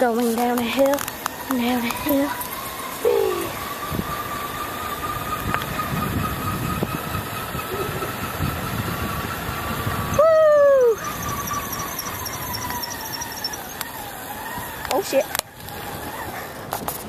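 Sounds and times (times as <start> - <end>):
faint steady whine: 0.0 - 16.3
bicycle tyres rolling on asphalt: 0.0 - 17.0
wind buffeting microphone: 0.0 - 17.0
hoot-like squeal: 3.0 - 3.6, 10.2 - 13.9.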